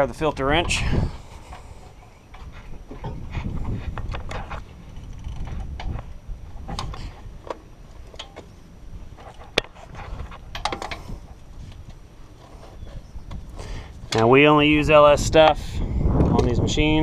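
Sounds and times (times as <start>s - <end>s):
wind rumble on microphone: 0.0s - 1.5s, 2.4s - 8.1s, 8.8s - 12.0s, 12.7s - 17.0s.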